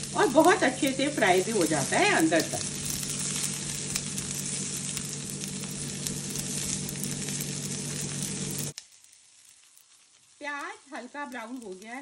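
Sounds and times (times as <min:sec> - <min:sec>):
steady low hum: 0:00.0 - 0:08.8
spatula turning food in pan: 0:00.0 - 0:12.0
vegetables sizzling in hot oil: 0:00.0 - 0:12.0.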